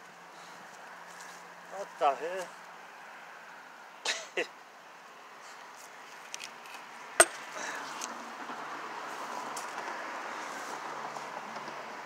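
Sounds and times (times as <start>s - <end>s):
metal-on-metal clank: 7.2s - 7.4s.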